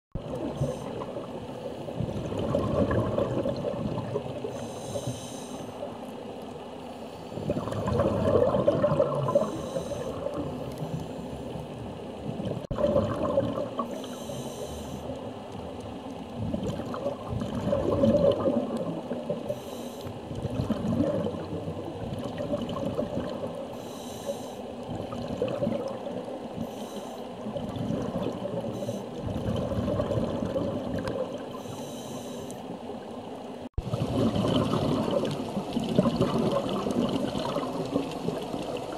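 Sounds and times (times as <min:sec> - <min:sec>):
exhaled bubbles rushing: 0:00.2 - 0:04.6, 0:07.4 - 0:11.0, 0:11.8 - 0:14.0, 0:16.3 - 0:19.6, 0:20.3 - 0:23.7, 0:24.8 - 0:26.6, 0:27.4 - 0:31.6, 0:33.8 - 0:38.9
regulator hiss on inhale: 0:00.4 - 0:01.9, 0:04.4 - 0:05.9, 0:09.3 - 0:11.6, 0:13.8 - 0:15.2, 0:19.4 - 0:20.2, 0:23.7 - 0:24.7, 0:26.6 - 0:27.4, 0:28.7 - 0:29.2, 0:31.5 - 0:32.7.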